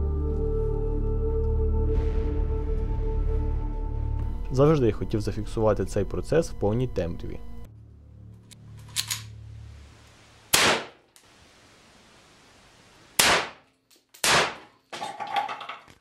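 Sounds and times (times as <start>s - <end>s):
gunshots echoing: 10.5s - 11.0s, 13.2s - 13.6s, 14.2s - 14.7s.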